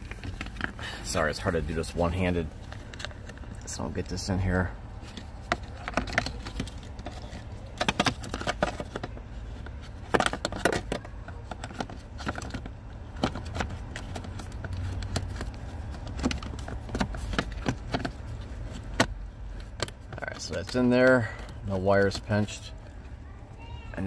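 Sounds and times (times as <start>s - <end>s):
steady low hum: 0.0s - 23.6s
plastic clicks and scrapes: 5.0s - 20.8s.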